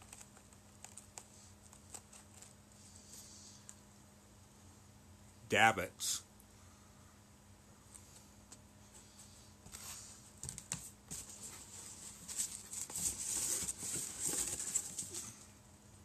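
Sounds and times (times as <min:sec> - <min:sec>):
foam and cardboard rustling: 0:09.7 - 0:15.4.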